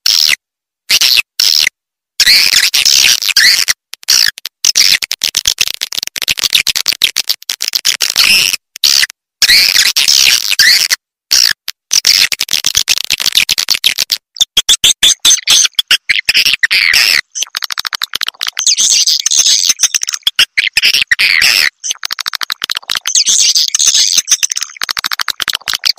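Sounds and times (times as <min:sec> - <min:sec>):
high twittering bird chirps: 0:18.6 - 0:22.0, 0:23.0 - 0:24.8
fast dense clicking: 0:21.9 - 0:23.1, 0:24.3 - 0:25.9.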